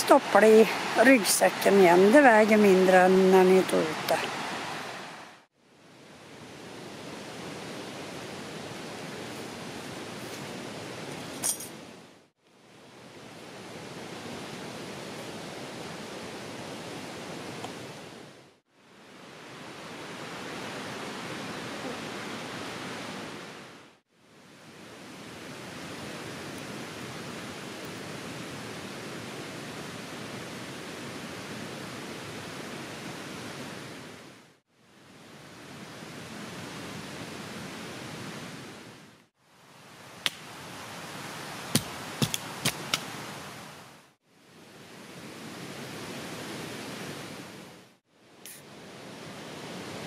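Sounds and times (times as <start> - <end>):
river rapids rushing: 0.0 - 5.5.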